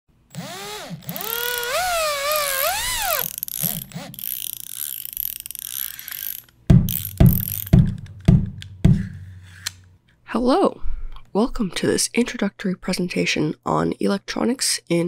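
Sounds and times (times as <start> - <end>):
mechanical clicking and whirring: 0.4 - 8.2
heavy thuds: 6.7 - 9.9.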